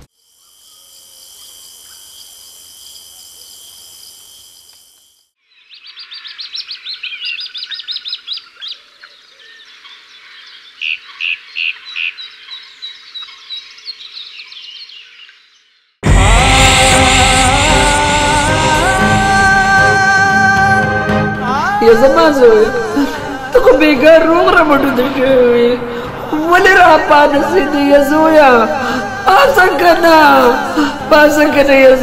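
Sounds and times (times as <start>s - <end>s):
night insects trilling: 0.0s - 8.3s
birds chirping and singing: 5.5s - 16.0s
loud bird calls: 5.5s - 16.0s.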